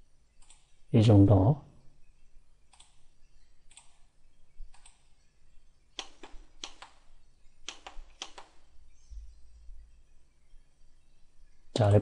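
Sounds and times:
computer mouse clicks: 0.4s - 0.7s, 2.7s - 3.1s, 3.7s - 4.1s, 4.7s - 5.1s, 6.0s - 8.7s.

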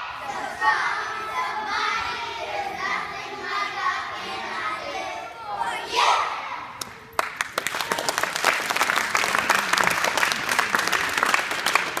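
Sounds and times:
audience applauding: 7.2s - 12.0s.

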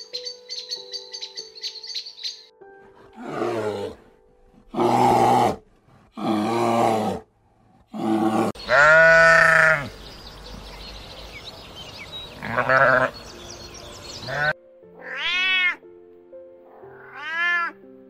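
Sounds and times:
animal calling: 8.0s - 10.0s, 12.3s - 13.2s, 14.2s - 15.8s.

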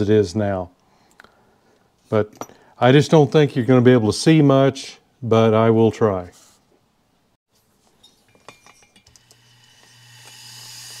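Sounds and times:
grinder whining: 9.0s - 11.0s.

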